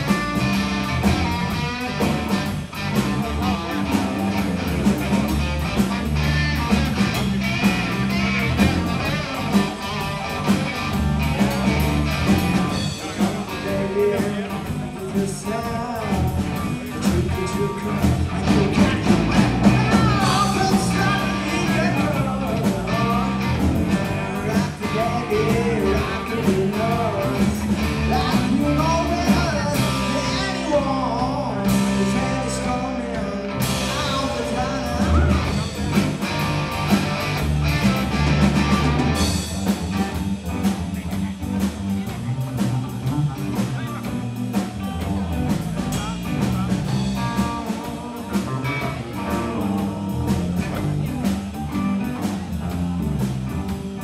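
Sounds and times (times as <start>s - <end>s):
drum kit: 0.0s - 54.0s
electric bass: 0.0s - 54.0s
electric guitar: 0.0s - 54.0s
person singing: 12.5s - 37.2s, 45.8s - 52.8s.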